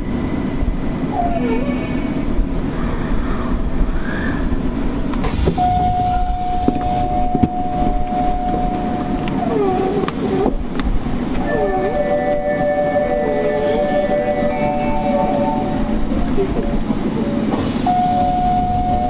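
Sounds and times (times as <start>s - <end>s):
subway train rumbling: 0.0s - 19.0s
train motor whine: 5.5s - 16.9s.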